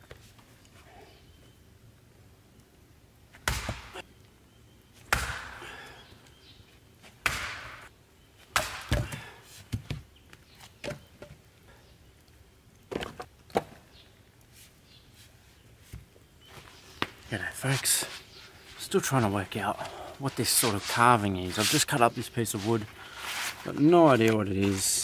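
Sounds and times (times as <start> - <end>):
axe chopping firewood: 3.4 - 4.0, 5.1 - 6.0, 7.2 - 7.8, 8.5 - 9.9.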